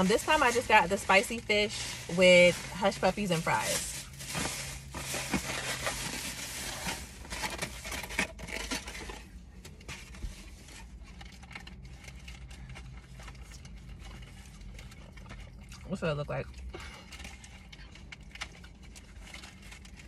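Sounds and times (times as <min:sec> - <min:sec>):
plastic bag rustling: 0:00.0 - 0:15.2.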